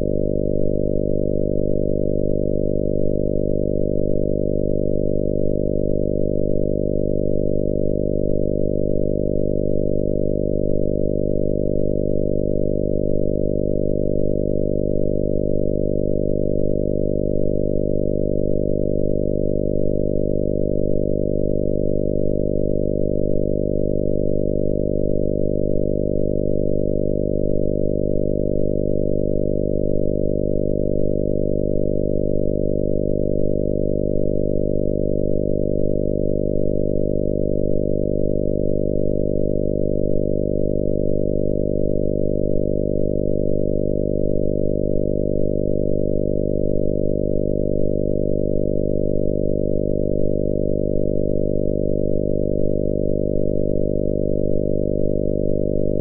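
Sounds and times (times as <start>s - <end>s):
synthesized mains hum: 0.0s - 42.0s, 55.5s - 56.0s.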